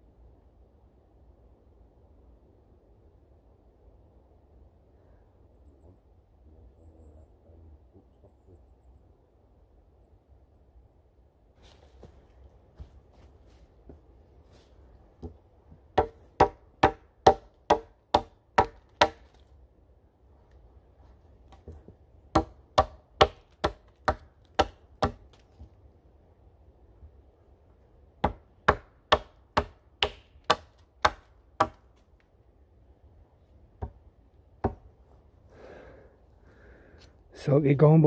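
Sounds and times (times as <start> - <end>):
hatchet chopping wood: 15.2 - 19.4, 21.5 - 25.4, 28.2 - 31.9, 34.6 - 34.8.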